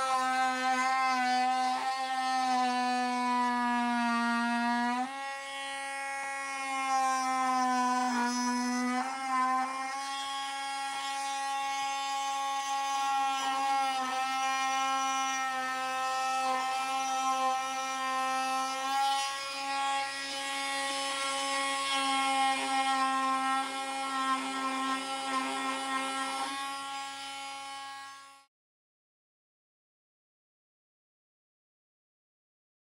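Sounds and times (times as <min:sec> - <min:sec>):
blade cutting wood: 0:00.0 - 0:28.5.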